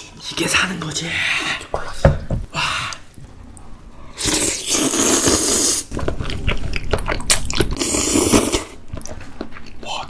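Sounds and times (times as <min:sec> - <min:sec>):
noodle slurping: 0:04.2 - 0:08.8.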